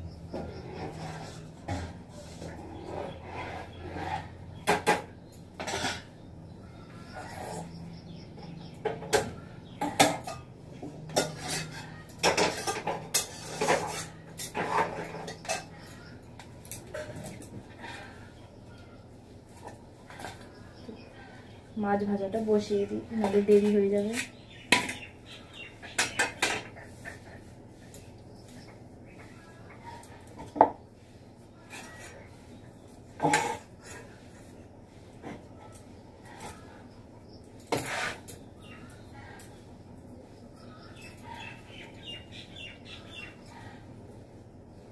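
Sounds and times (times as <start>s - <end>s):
metal pots and utensils clattering: 0.2s - 18.3s, 22.6s - 28.0s, 33.1s - 34.5s, 37.6s - 39.5s
metal utensils clanking: 3.6s - 6.3s, 8.7s - 18.2s.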